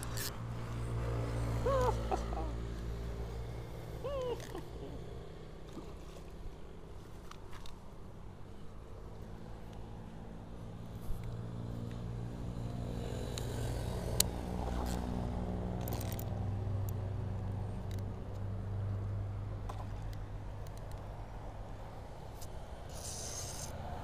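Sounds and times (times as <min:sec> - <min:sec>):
engine humming: 0:00.0 - 0:08.7.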